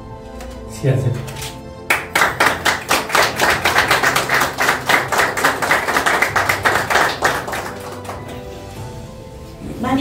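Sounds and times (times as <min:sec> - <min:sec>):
people clapping hands: 0:01.8 - 0:08.6.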